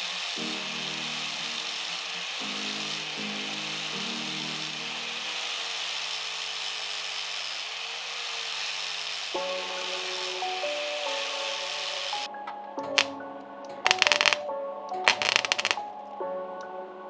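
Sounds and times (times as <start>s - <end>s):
background music: 0.0s - 5.5s, 9.4s - 17.0s
angle grinder grinding metal: 0.0s - 12.3s.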